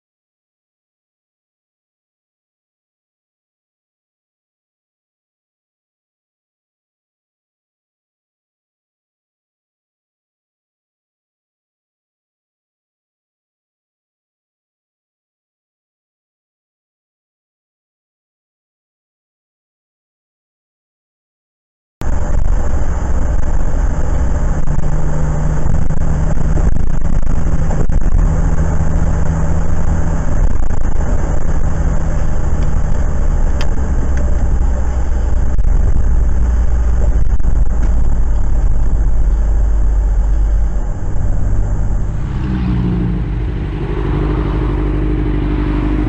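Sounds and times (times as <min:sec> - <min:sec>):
car road and engine rumble: 0:22.0 - 0:46.0
motorcycle engine running: 0:22.0 - 0:46.0.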